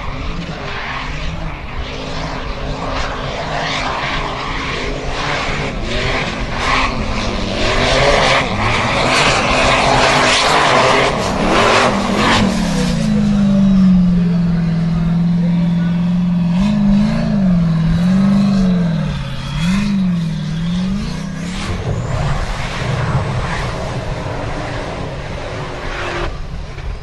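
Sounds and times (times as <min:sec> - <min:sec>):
buggy engine revving hard: 0:04.5 - 0:25.2.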